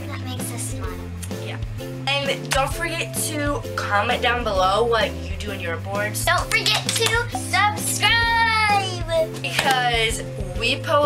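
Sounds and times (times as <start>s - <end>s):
girl speaking: 0.0s - 1.2s, 6.3s - 9.6s
background music: 0.0s - 11.0s.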